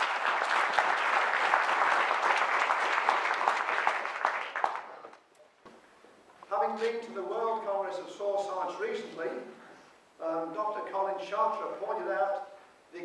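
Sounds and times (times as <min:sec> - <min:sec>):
audience applause: 0:00.0 - 0:05.2.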